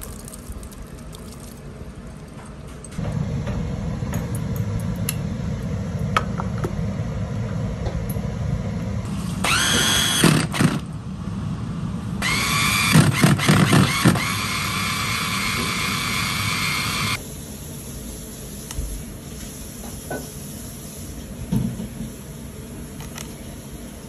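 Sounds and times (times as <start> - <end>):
food chopper motor whining: 9.4 - 10.8, 12.2 - 17.2.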